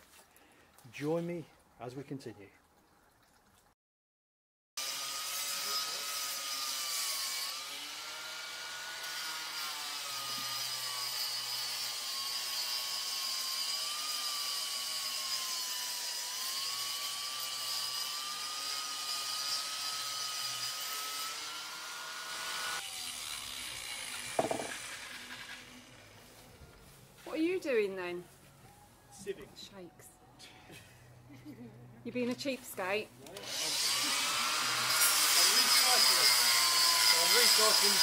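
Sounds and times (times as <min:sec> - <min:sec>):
power tool grinding mortar: 0:04.8 - 0:26.1, 0:33.3 - 0:38.0
thump: 0:24.4 - 0:24.7.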